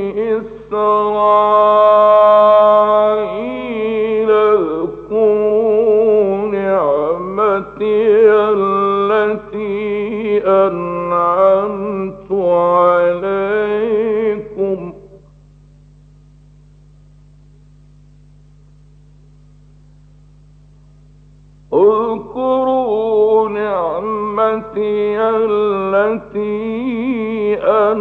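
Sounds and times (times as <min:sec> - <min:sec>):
man chanting melismatic recitation: 0:00.0 - 0:15.2, 0:21.7 - 0:28.0
low hum of old recording: 0:00.0 - 0:28.0.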